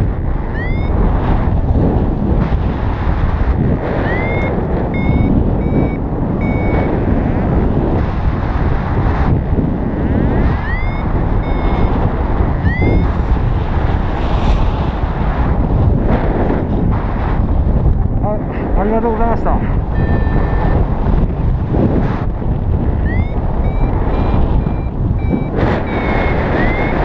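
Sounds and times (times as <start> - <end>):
variometer beeping: 0.0 - 1.2, 3.6 - 8.3, 9.3 - 13.2, 19.2 - 27.0
wind rushing over microphone: 0.0 - 27.0.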